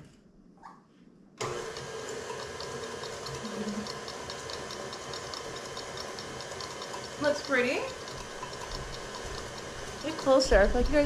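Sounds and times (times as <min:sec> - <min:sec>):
stand mixer running: 0:01.4 - 0:11.0
quick regular ticking: 0:02.6 - 0:11.0.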